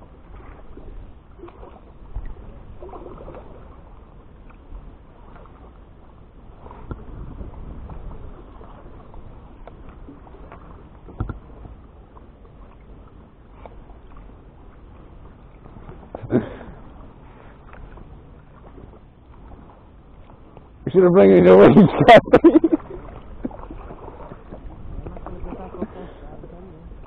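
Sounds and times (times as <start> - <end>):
paddle splashing in water: 0.0 - 27.0
small knocks on kayak: 9.6 - 11.8
water washing: 15.6 - 27.0.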